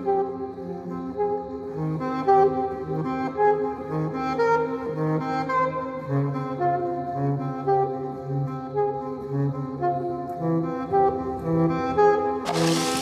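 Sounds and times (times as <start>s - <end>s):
loud hiss of noise: 12.5s - 13.0s.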